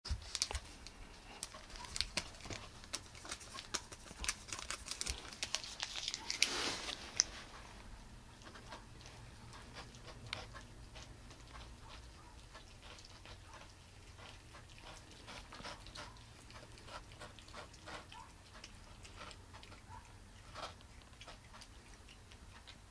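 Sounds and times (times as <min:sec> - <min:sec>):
cats sniffing and licking: 0:00.1 - 0:22.9
scuffs and rustles on carpet: 0:06.4 - 0:07.5.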